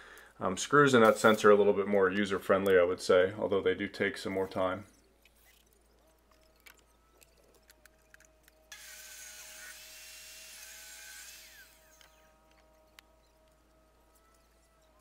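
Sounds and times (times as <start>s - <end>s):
faint power drill driving screw: 8.7s - 13.3s.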